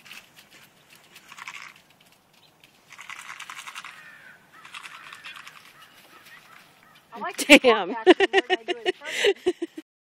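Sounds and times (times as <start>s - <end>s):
footsteps on gravel: 0.0s - 7.8s.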